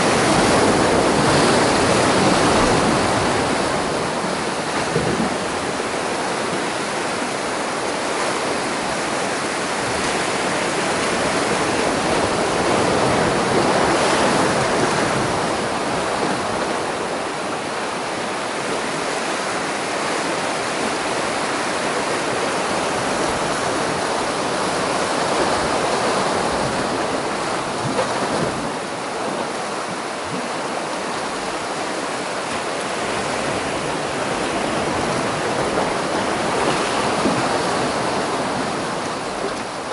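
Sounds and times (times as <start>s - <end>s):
surf breaking over rocks: 0.0s - 39.9s.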